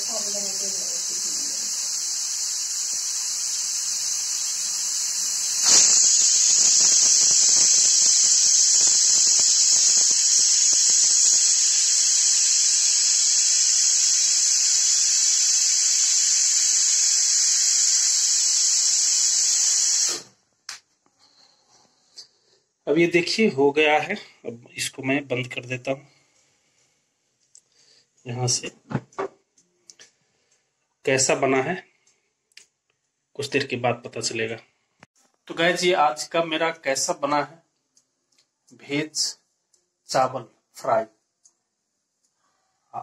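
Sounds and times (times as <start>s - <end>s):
pressure cooker whistling steam: 0.0s - 20.3s.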